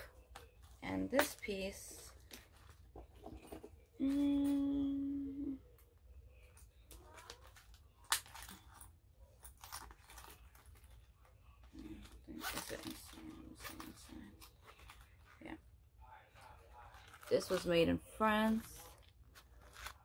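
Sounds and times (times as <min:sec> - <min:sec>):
wallet rustling and scraping: 0:00.1 - 0:03.8, 0:07.1 - 0:15.6, 0:16.3 - 0:20.0.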